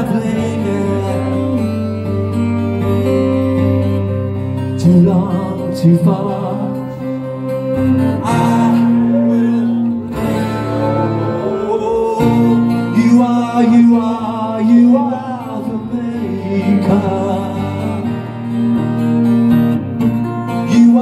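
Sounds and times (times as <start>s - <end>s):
man singing: 0.0s - 2.2s, 4.6s - 18.4s, 20.3s - 21.0s
acoustic guitar strumming: 0.0s - 21.0s.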